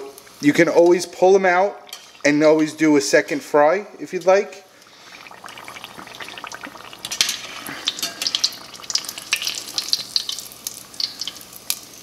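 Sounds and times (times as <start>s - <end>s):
food sizzling in hot oil: 0.0s - 3.1s, 4.7s - 12.0s
metal spatula scraping pot: 7.1s - 8.6s.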